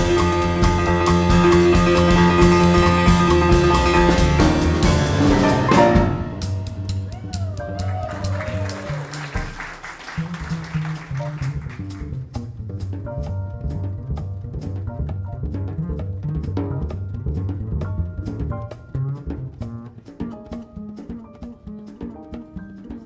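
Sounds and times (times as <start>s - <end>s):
loud piano passage: 0.0s - 9.6s
jazz trio playing: 0.0s - 23.0s
upright bass notes: 0.0s - 23.0s.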